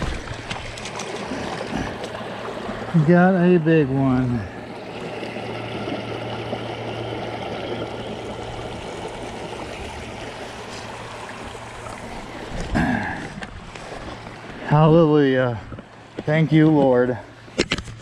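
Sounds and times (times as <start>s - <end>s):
creek water rushing: 0.0s - 17.6s.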